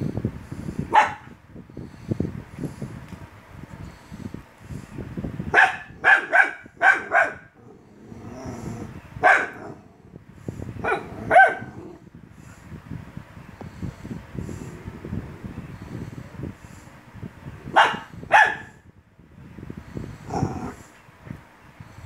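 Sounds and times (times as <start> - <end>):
small dog barking: 0.9 - 1.3, 5.5 - 7.5, 9.2 - 9.8, 10.8 - 11.8, 17.7 - 18.7.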